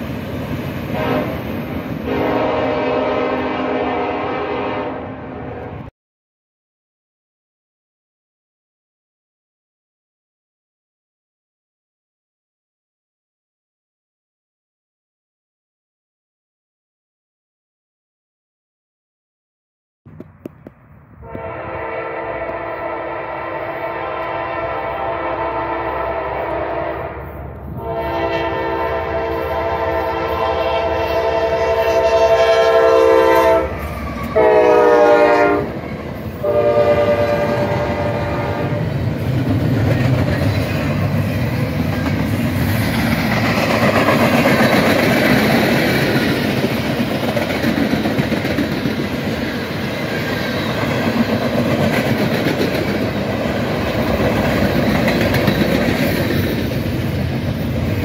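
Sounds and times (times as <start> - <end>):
locomotive air horn blasts: 0.9 - 1.4, 2.0 - 5.9, 21.2 - 35.8, 36.4 - 38.9.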